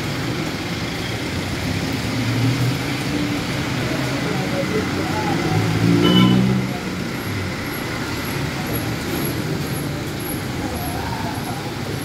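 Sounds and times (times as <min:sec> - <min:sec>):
passing traffic: 0:00.0 - 0:12.0
rain on wet street: 0:00.0 - 0:12.0
vehicle engine nearby: 0:00.0 - 0:12.0.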